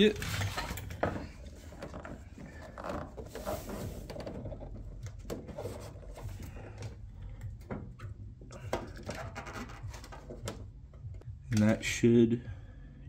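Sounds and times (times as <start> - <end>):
plastic panel rubbing and clicking: 0.1 - 6.9, 7.6 - 10.7.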